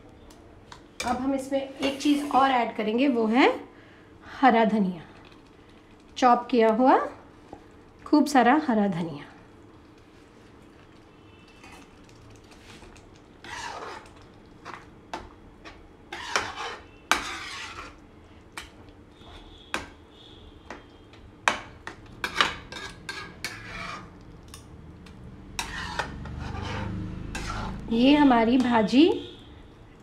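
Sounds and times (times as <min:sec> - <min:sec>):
metal spatula scraping a pan: 0:01.0 - 0:02.6, 0:12.8 - 0:14.8, 0:15.6 - 0:18.0, 0:22.2 - 0:24.6, 0:25.5 - 0:28.0.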